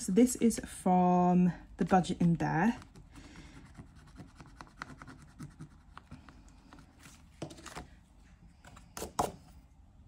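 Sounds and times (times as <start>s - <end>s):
fingernail scraping scratch card: 2.8s - 6.8s.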